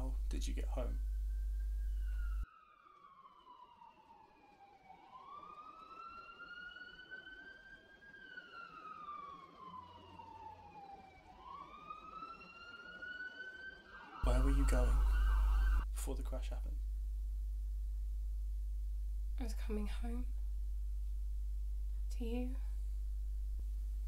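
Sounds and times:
low steady hum: 0:00.0 - 0:02.4, 0:14.2 - 0:24.0
emergency vehicle siren wailing: 0:01.8 - 0:15.9.

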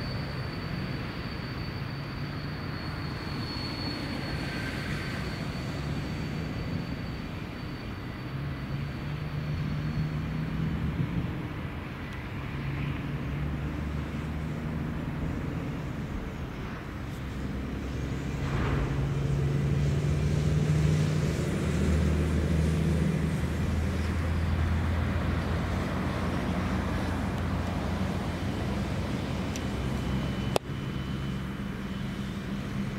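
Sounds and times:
low engine hum: 0:04.2 - 0:32.9.

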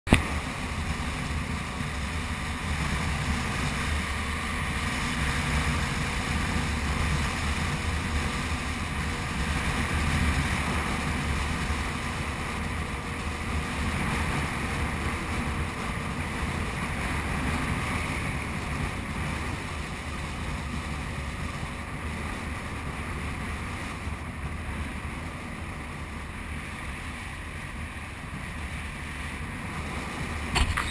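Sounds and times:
motorcycle engine running: 0:30.5 - 0:30.9.

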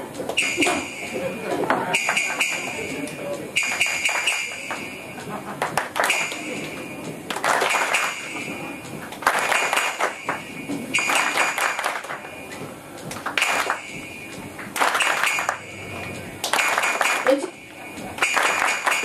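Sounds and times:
shrill whistle-like tone: 0:00.4 - 0:00.8, 0:01.9 - 0:02.8, 0:03.6 - 0:04.7
loud percussion crashes: 0:06.0 - 0:12.4, 0:13.4 - 0:19.0.

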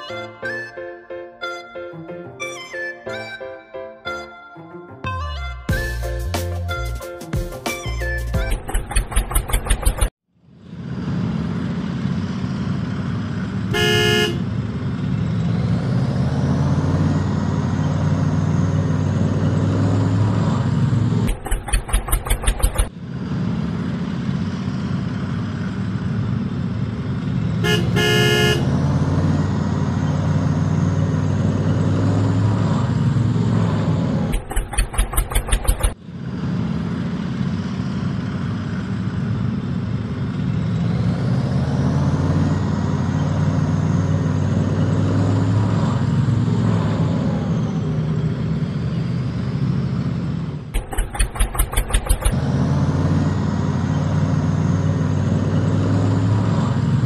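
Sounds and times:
tractor engine running: 0:05.8 - 0:57.0
horn tooting: 0:13.7 - 0:14.6, 0:27.6 - 0:28.8
rapid even ticking: 0:21.3 - 0:22.9, 0:34.3 - 0:36.0, 0:50.8 - 0:52.4.

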